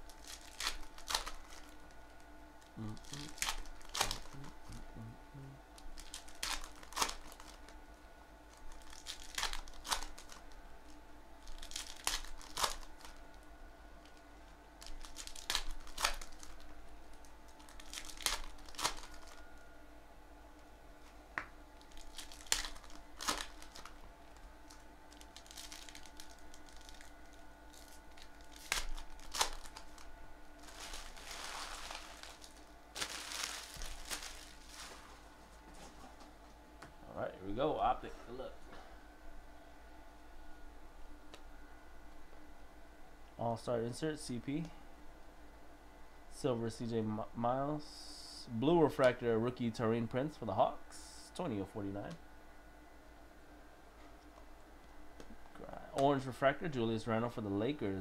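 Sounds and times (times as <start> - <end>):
foil wrappers ripping: 0.0 - 1.8, 2.9 - 4.5, 5.8 - 7.7, 8.5 - 10.5, 11.4 - 13.2, 14.8 - 19.4, 21.8 - 35.4
foil wrapper crinkling: 0.0 - 1.9, 2.9 - 4.5, 5.8 - 7.8, 8.5 - 10.6, 11.4 - 13.3, 14.8 - 19.4, 21.8 - 36.2
faint steady hum: 0.0 - 58.0.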